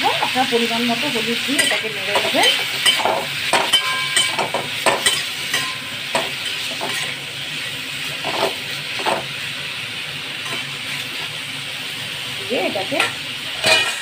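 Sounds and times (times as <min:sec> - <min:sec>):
oil sizzling in a pan: 0:00.0 - 0:14.0
metal spatula scraping a pan: 0:01.5 - 0:07.2, 0:13.5 - 0:14.0.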